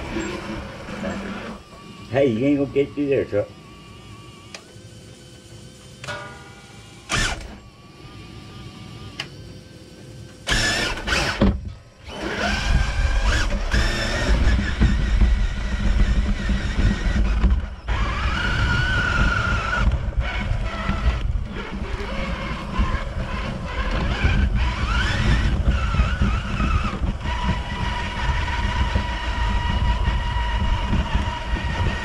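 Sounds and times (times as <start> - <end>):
toy truck electric motor whining: 0.0 - 6.1, 6.7 - 32.0
tyre and ground noise: 10.1 - 32.0.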